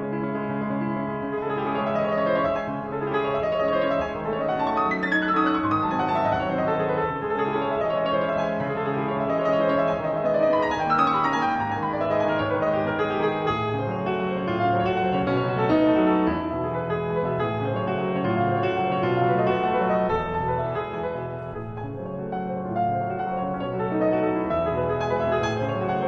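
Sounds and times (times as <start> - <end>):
classical piano piece: 0.0 - 26.0.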